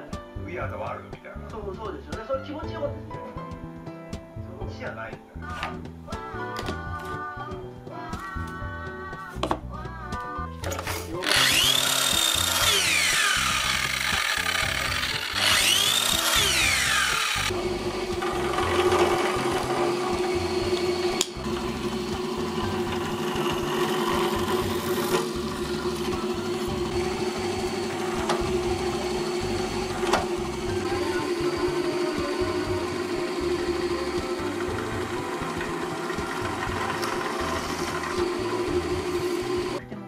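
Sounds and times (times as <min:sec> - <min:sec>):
background music: 0:00.0 - 0:40.0
mitre saw cutting: 0:11.0 - 0:39.8
drill press boring into wood: 0:11.2 - 0:39.8.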